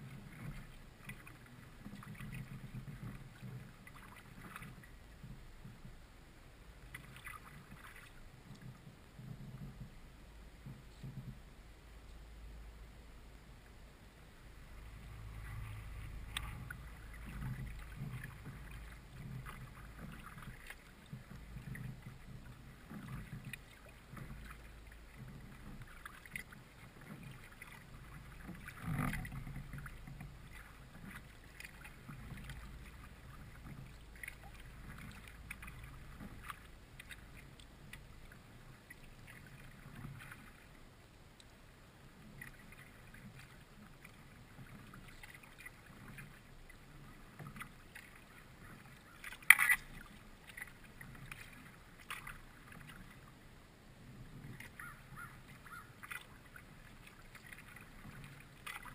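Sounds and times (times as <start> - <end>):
paddle splashing in water: 0.0 - 6.0, 6.8 - 10.0, 14.6 - 58.9
low rumble: 8.2 - 22.9.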